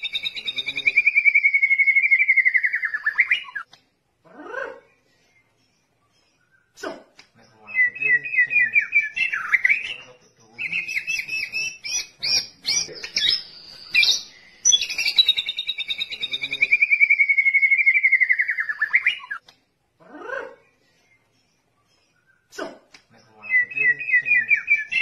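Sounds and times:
bird singing trills and whistles: 0.0 - 3.7, 7.4 - 19.4, 23.2 - 25.0.

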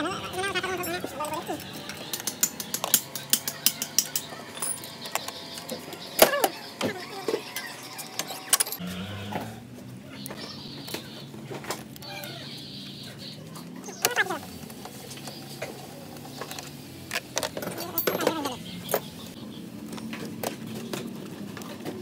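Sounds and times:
hand tools clinking on metal: 0.2 - 6.5, 17.4 - 19.1.

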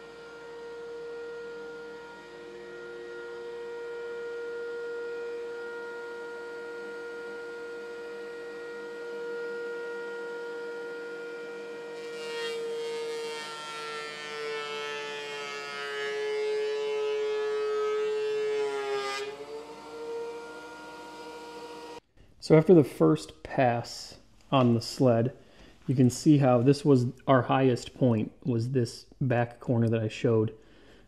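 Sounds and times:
planer cutting board: 0.0 - 22.0
thickness planer motor whine: 0.0 - 22.0.

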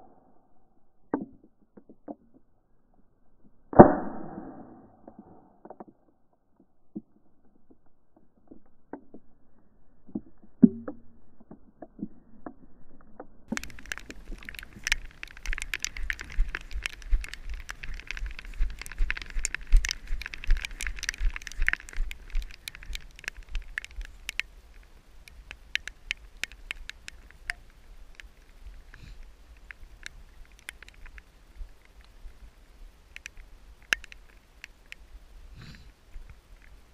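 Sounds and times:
walking through wet grass: 13.5 - 24.3.

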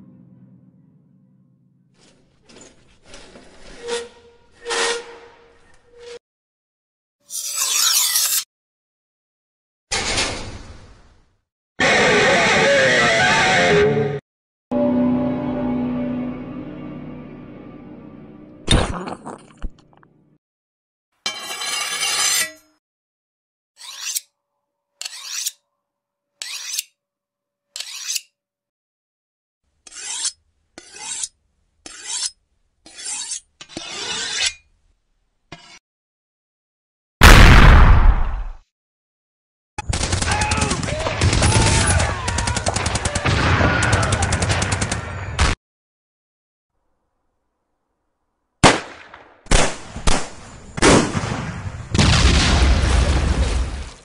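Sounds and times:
knife scraping on sharpening steel: 7.3 - 8.5, 21.3 - 22.7, 23.8 - 24.3, 25.0 - 25.6, 26.4 - 27.0, 27.8 - 28.4, 29.8 - 34.7, 35.5 - 35.8
sustained explosion: 37.2 - 38.5
sharp explosive bangs: 37.2 - 38.6, 48.6 - 53.5.

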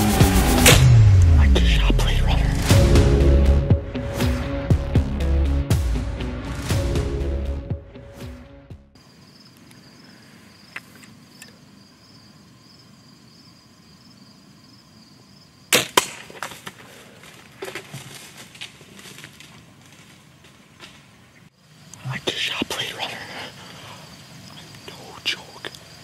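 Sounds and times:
arrow smacking into deer: 0.6 - 1.0, 15.7 - 16.8
bowstring snap: 0.6 - 1.4
insects trilling: 9.0 - 26.0
deer crashing through brush: 15.8 - 21.1.

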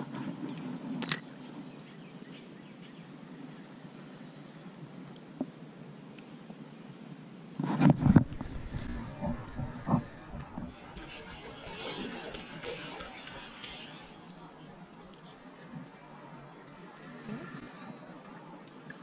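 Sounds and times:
loud low rumbling: 8.0 - 14.8.

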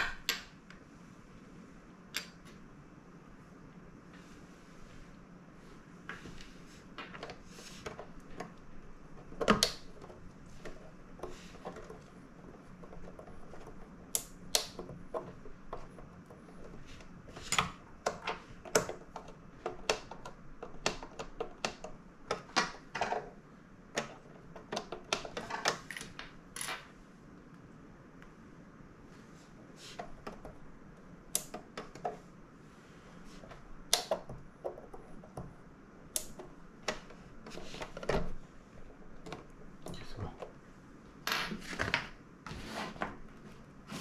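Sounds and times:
plastic parts clicking and tapping: 7.0 - 26.4, 31.3 - 32.2, 33.5 - 40.6.

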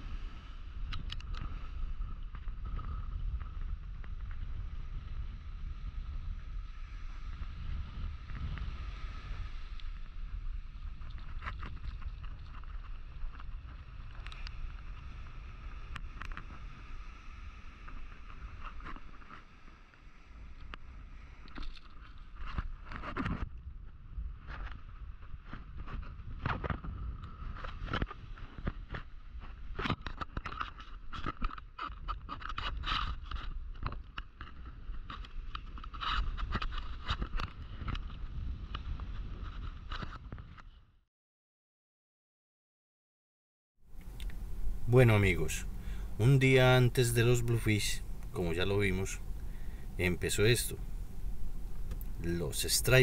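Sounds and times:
wind buffeting microphone: 0.0 - 17.0, 43.9 - 53.0.

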